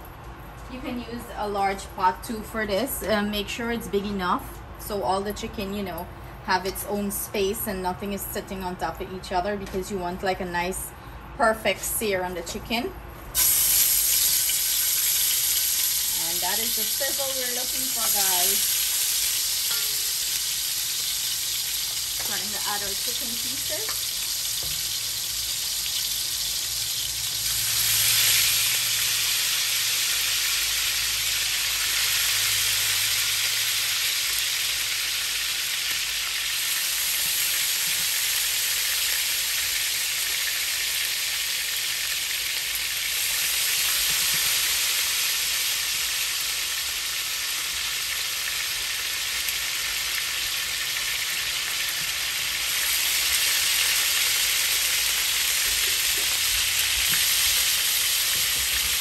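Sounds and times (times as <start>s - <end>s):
chicken sizzling in hot oil: 13.4s - 59.0s.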